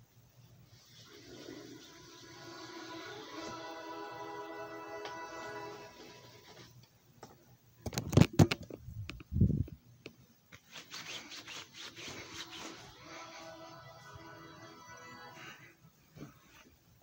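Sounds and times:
music: 1.0s - 6.7s, 12.4s - 15.8s.

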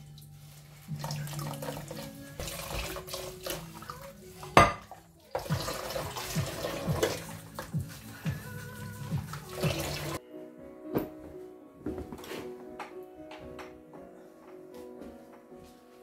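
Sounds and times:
sponge scrubbing plates: 0.0s - 10.2s
tap water running and splashing: 0.0s - 10.2s.

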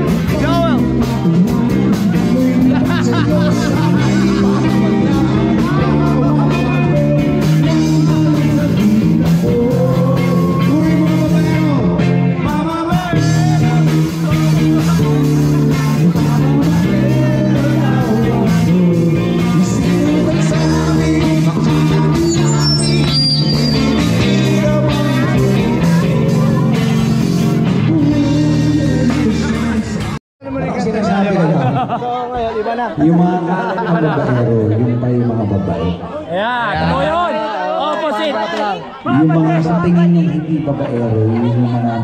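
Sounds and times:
instrumental accompaniment: 0.0s - 30.2s
man singing a love song: 0.0s - 30.2s.

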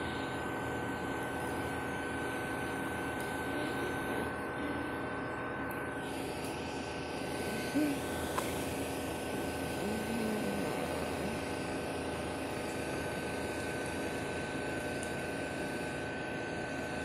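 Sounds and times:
mechanical hum with high whine: 0.0s - 17.0s
faint voice sounds: 3.4s - 5.2s, 7.3s - 8.8s, 9.6s - 11.6s.

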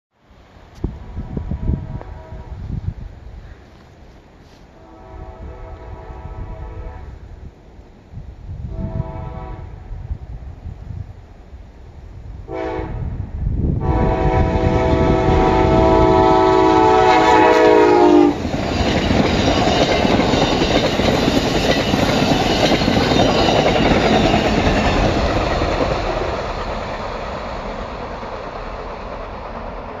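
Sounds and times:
train horn: 1.0s - 2.8s, 4.4s - 7.3s, 8.7s - 9.9s, 12.5s - 19.0s
train wheels clattering on rails: 16.6s - 30.0s.

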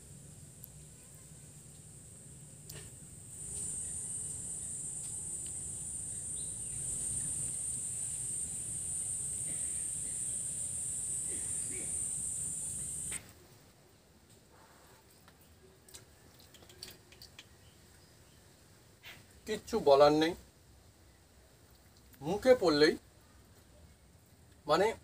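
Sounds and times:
high-pitched insect trilling: 3.3s - 13.2s.

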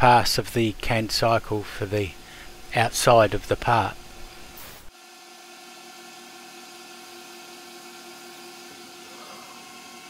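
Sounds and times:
lathe machine hum: 4.4s - 10.0s.

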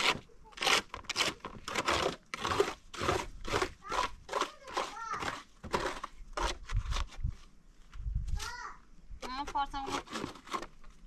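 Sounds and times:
people talking: 8.4s - 10.0s.

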